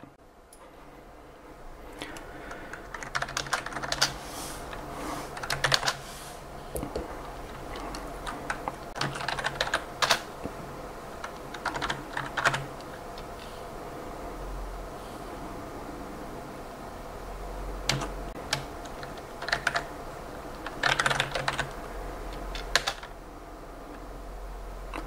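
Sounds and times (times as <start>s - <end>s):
computer keyboard typing: 2.0s - 6.0s, 6.8s - 10.3s, 11.1s - 13.4s, 17.8s - 19.9s, 20.5s - 23.2s.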